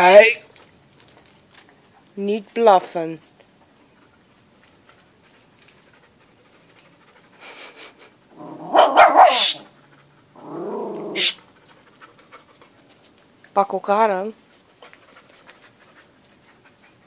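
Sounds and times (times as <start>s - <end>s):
dogs growling: 8.3s - 11.4s
dogs barking: 8.4s - 9.7s, 10.4s - 11.4s.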